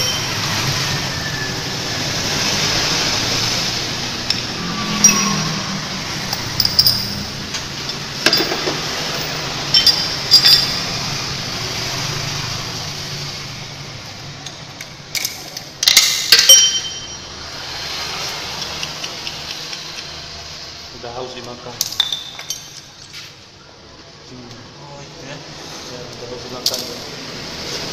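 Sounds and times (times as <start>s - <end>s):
sharp metallic clinks: 0.0s - 0.8s, 4.2s - 11.1s, 14.4s - 17.4s, 21.8s - 23.1s.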